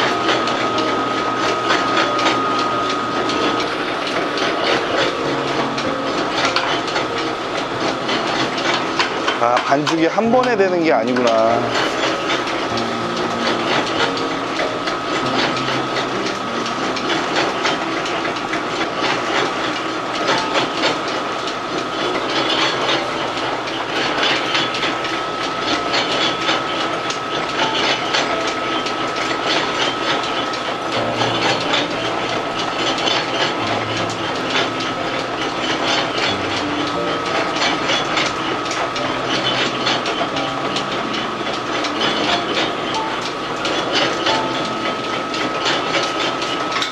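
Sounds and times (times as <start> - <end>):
high machine whine: 0.0 - 46.9
noodle machine clattering: 0.0 - 46.9.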